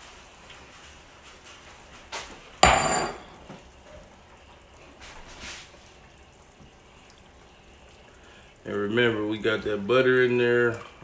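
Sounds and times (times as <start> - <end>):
pot of water boiling: 0.0 - 11.0
metallic clank of cookware: 2.6 - 3.6.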